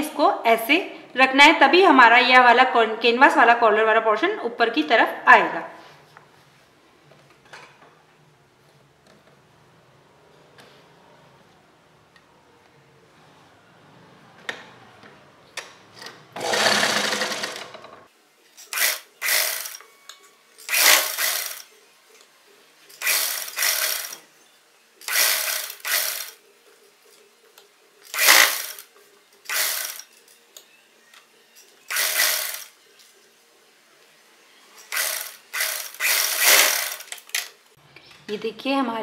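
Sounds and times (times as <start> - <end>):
sewing machine stitching: 16.4 - 18.1, 18.8 - 19.8, 20.7 - 21.7, 23.0 - 24.2, 25.0 - 26.4, 28.1 - 28.8, 29.4 - 30.1, 31.9 - 32.7, 34.8 - 37.5.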